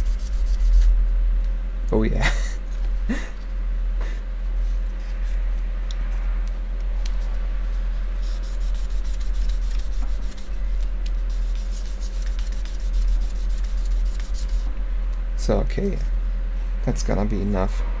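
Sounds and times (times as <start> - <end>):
steady low hum: 0.0 - 18.0
cloth rubbing on metal: 8.2 - 10.5, 11.2 - 14.7.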